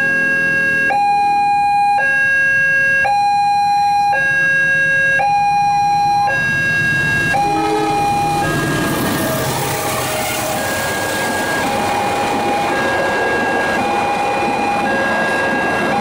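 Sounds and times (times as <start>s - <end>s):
level crossing two-tone alarm: 0.0s - 9.9s, 10.5s - 16.0s
diesel train passing: 5.6s - 16.0s.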